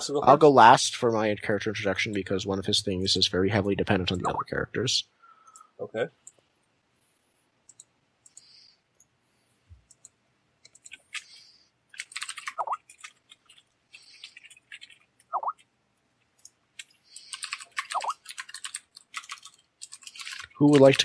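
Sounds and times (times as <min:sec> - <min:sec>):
computer keyboard typing: 0:07.7 - 0:09.1, 0:09.8 - 0:15.7, 0:16.3 - 0:21.0
squeaky chirps: 0:12.6 - 0:12.8, 0:15.3 - 0:15.6, 0:17.9 - 0:18.2.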